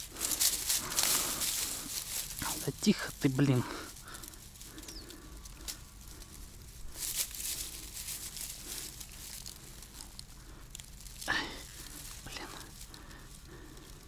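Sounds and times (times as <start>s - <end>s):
dry grass rustling: 0.0s - 14.0s
faint clicks: 4.1s - 6.4s.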